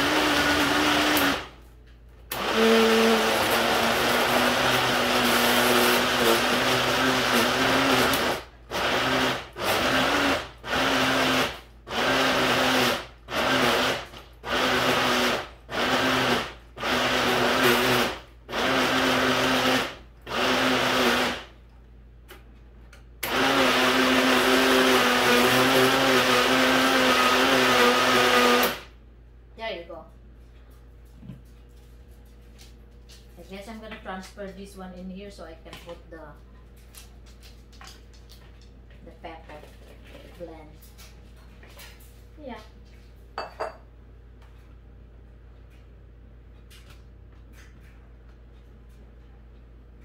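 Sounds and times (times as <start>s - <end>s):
blender chopping: 0.0s - 1.5s, 2.3s - 21.5s, 23.2s - 28.9s.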